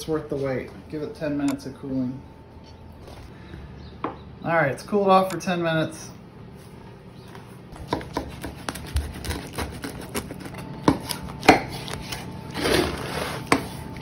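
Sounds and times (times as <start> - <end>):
knife crunching through pizza: 7.8 - 14.0.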